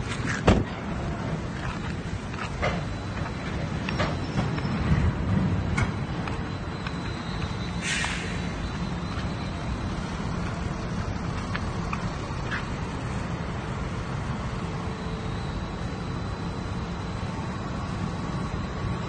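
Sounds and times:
crane mechanical hum: 0.0s - 19.0s
short hiss: 7.8s - 8.4s.

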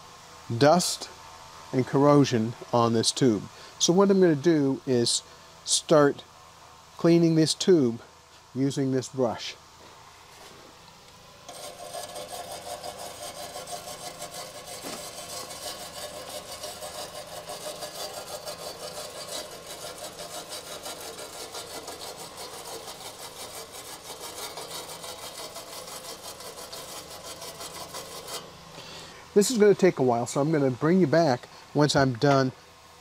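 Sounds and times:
brush scrubbing metal tube: 11.5s - 28.5s.

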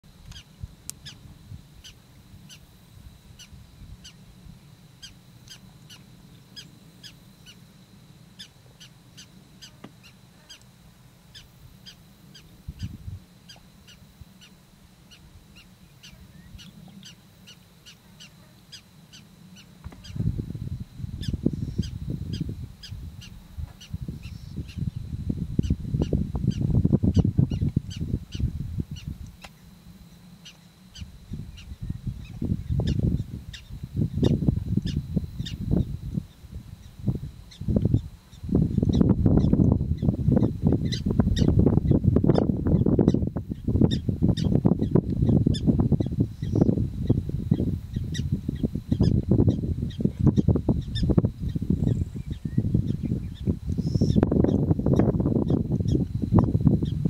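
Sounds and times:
sharp high-pitched animal calls: 0.3s - 4.3s, 5.0s - 20.2s, 21.1s - 25.0s, 25.6s - 29.8s, 30.4s - 57.0s.

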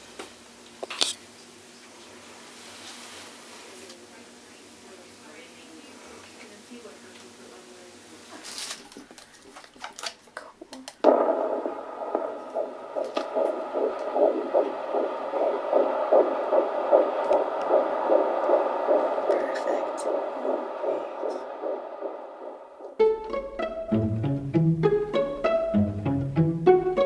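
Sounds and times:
fetal heartbeat whooshing: 11.0s - 24.2s.

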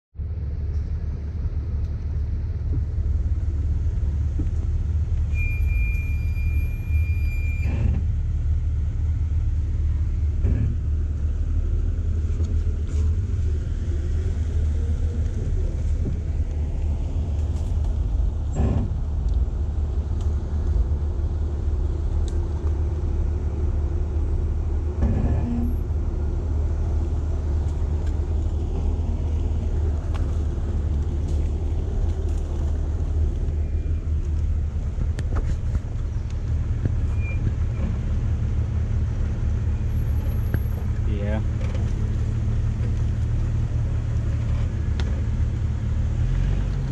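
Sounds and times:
vehicle engine rumble: 0.1s - 46.9s
high electronic beep: 5.3s - 7.7s.

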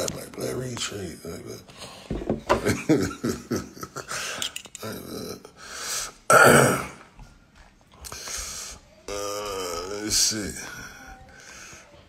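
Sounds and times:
man making wordless vocal noises: 4.8s - 5.6s, 9.1s - 11.0s.

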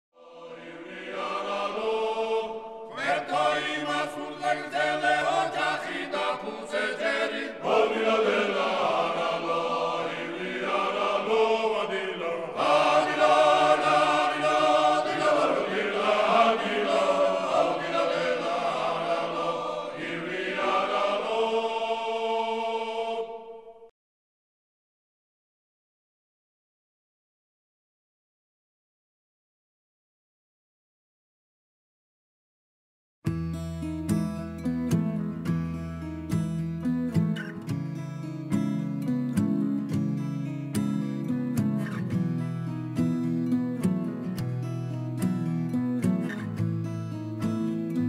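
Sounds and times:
slow choral singing: 0.2s - 23.9s.

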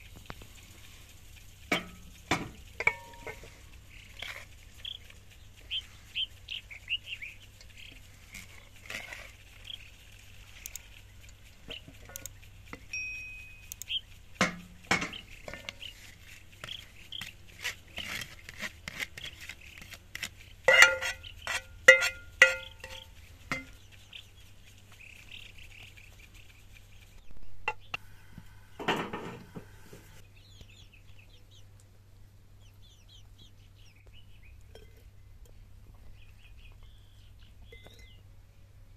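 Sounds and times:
chickens clucking: 0.0s - 12.9s, 13.6s - 30.6s
small birds chirping: 0.0s - 38.9s
spatula scraping a pot: 1.7s - 5.2s, 7.9s - 10.0s, 14.4s - 23.8s
ringing metallic clinks: 12.9s - 13.8s, 21.9s - 23.7s.

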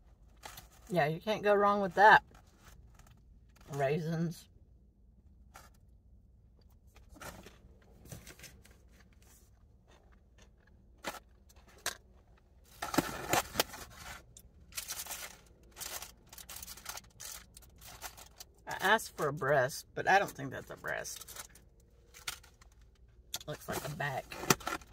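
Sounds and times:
food packaging clicking and rustling: 10.1s - 18.6s, 24.4s - 24.9s.

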